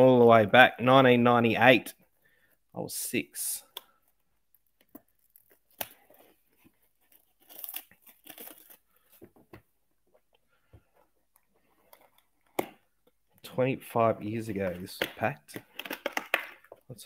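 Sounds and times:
plastic wrap crinkling and ripping: 4.6s - 9.0s.

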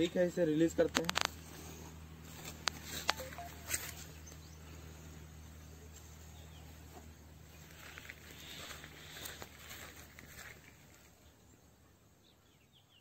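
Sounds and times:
steady low hum: 0.0s - 12.2s
sharp clicks: 2.4s - 3.9s.

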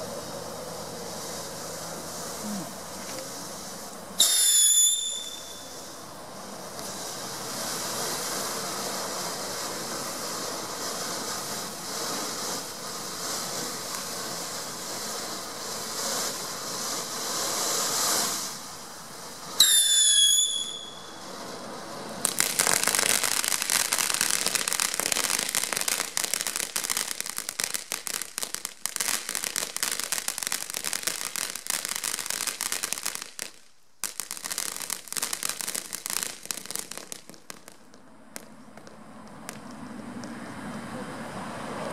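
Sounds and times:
firework whistle: 0.0s - 40.3s
firework spark spray hissing: 0.0s - 40.5s.

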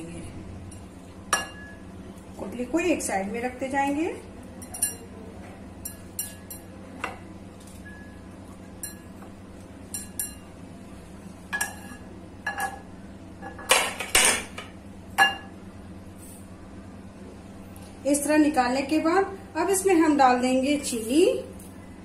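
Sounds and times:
knife clinking against glass bowl: 4.6s - 5.1s.

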